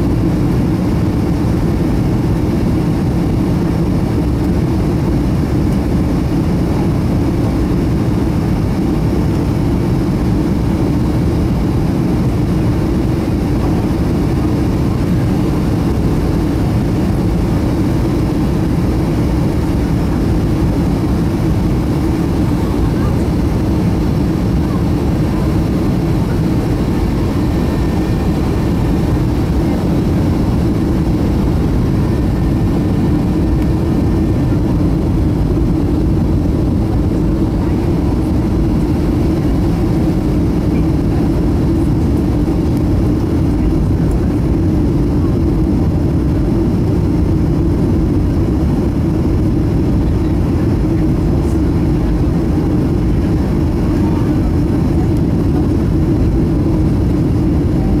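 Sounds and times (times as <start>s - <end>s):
air rushing over fuselage: 0.0s - 43.0s
faint steady whine: 0.0s - 58.0s
jet engines droning: 0.0s - 58.0s.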